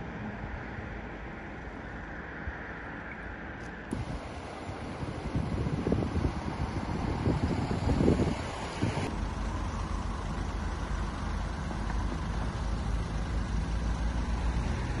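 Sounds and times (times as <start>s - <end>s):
road traffic noise: 0.0s - 15.0s
vehicle engines rumbling: 0.0s - 15.0s.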